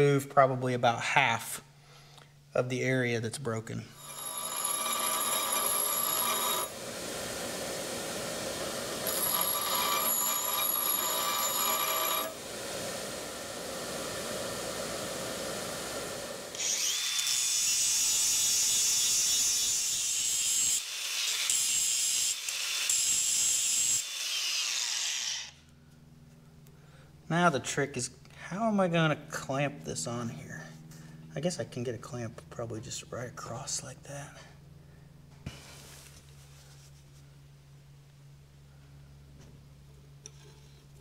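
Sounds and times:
grinder grinding cast iron: 0:04.0 - 0:07.4, 0:08.0 - 0:12.4, 0:16.5 - 0:25.6.

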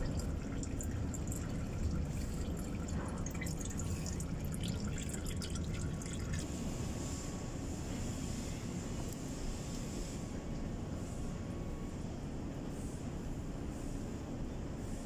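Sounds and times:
faint dripping: 0:00.0 - 0:06.5.

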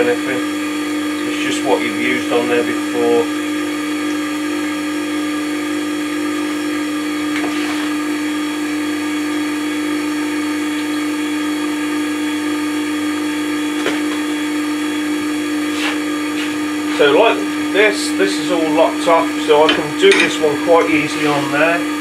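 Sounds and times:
electric motor humming: 0:00.0 - 0:22.0.

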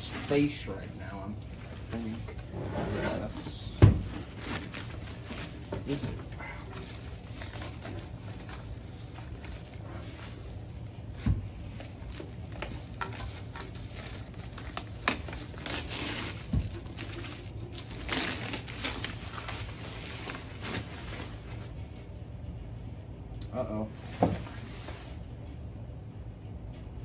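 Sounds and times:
plastic bag rustling: 0:00.0 - 0:22.0, 0:23.9 - 0:25.2.

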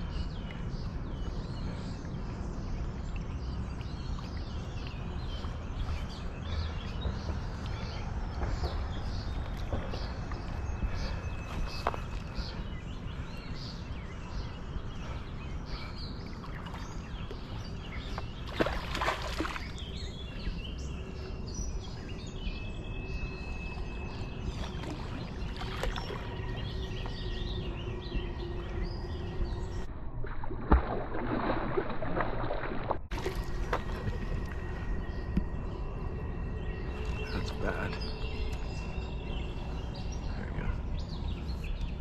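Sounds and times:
low background rumble: 0:00.0 - 0:42.0
fish splashing at surface: 0:30.6 - 0:34.3.

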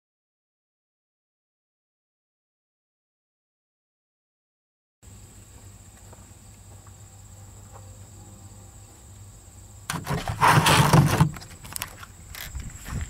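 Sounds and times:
faint steady hum: 0:05.0 - 0:13.0
camera handling rustling: 0:10.0 - 0:12.7.

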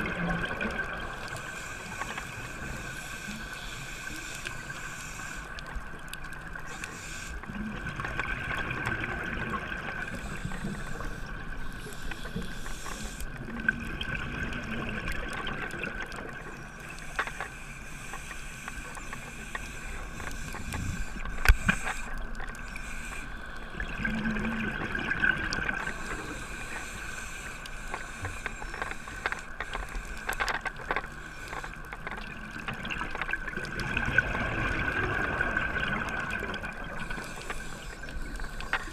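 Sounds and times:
exhaled bubbles underwater: 0:00.0 - 0:02.0, 0:07.5 - 0:12.0, 0:13.3 - 0:16.9, 0:23.6 - 0:26.5, 0:32.2 - 0:38.9
scuba regulator breathing: 0:01.3 - 0:05.8, 0:06.6 - 0:07.6, 0:10.0 - 0:13.5, 0:17.0 - 0:23.8, 0:25.7 - 0:31.9, 0:36.9 - 0:38.9.

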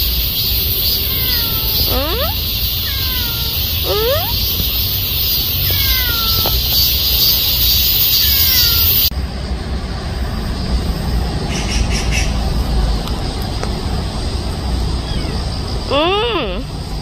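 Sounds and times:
bird calling: 0:00.0 - 0:09.1, 0:15.0 - 0:16.7
high-pitched hiss: 0:00.0 - 0:09.1.

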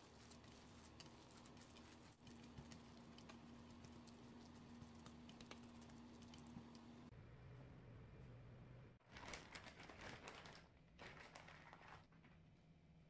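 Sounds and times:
hand kneading wet meat filling: 0:00.0 - 0:07.1.

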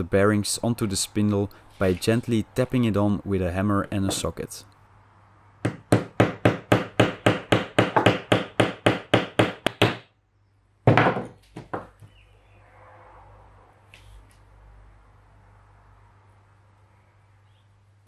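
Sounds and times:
loud knock: 0:10.9 - 0:12.0.

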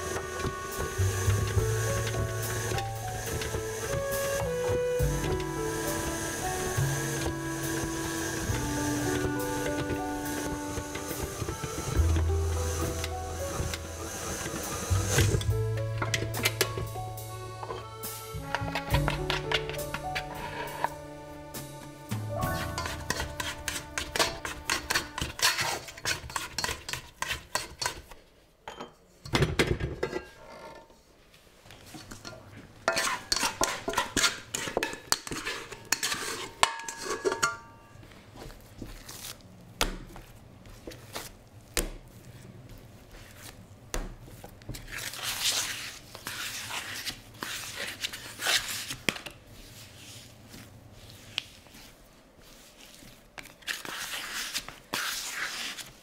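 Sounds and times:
metal mixer bowl clinking: 0:32.9 - 0:37.7
dough folded by hand: 0:38.0 - 0:56.0.

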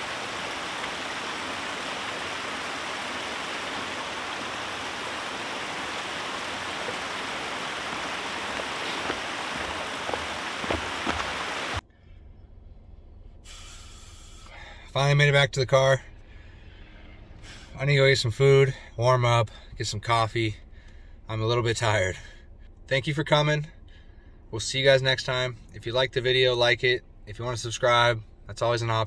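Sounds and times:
faint footsteps on trail: 0:00.0 - 0:11.8
running water rushing: 0:00.0 - 0:11.8
low hum: 0:00.0 - 0:14.7.

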